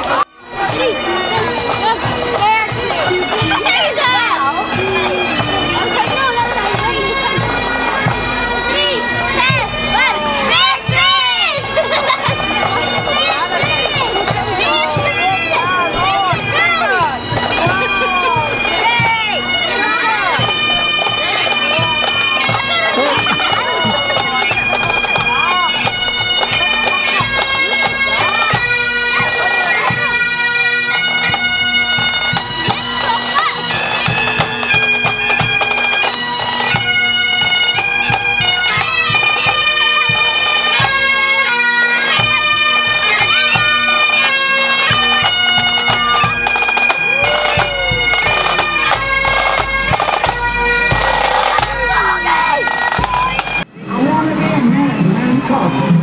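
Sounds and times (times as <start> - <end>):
bagpipes playing a march: 0.0 - 56.0
snare and bass drums beating: 44.9 - 53.6.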